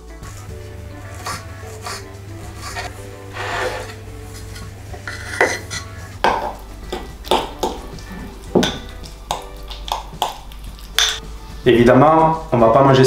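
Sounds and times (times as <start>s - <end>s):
knife scraping cutting board: 1.1s - 6.0s
spoon stirring in bowl: 1.1s - 11.2s.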